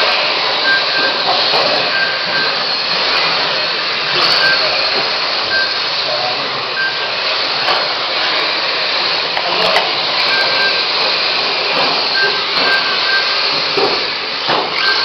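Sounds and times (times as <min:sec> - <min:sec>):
model cars whining: 0:00.0 - 0:15.0
short high beeps: 0:00.6 - 0:02.6, 0:04.0 - 0:04.8, 0:05.5 - 0:05.8, 0:06.8 - 0:07.1, 0:12.1 - 0:13.4, 0:14.8 - 0:15.0.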